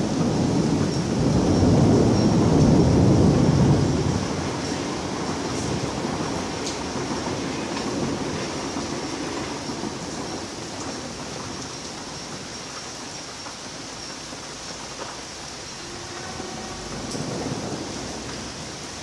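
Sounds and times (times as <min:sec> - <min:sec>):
low rumble of thunder: 0:00.0 - 0:19.0
steady rain: 0:00.0 - 0:19.0.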